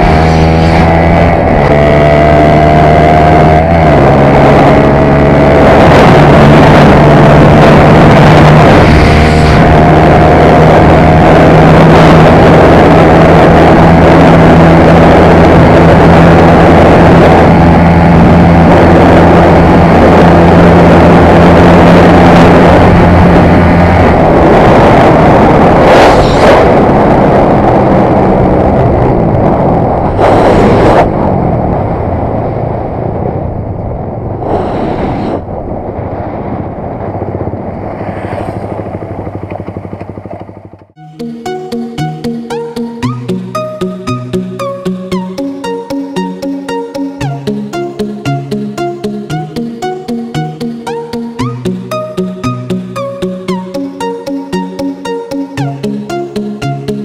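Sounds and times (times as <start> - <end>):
motorcycle engine at high revs: 0.0 - 28.0, 30.1 - 31.5
wind rush over microphone: 0.0 - 40.3.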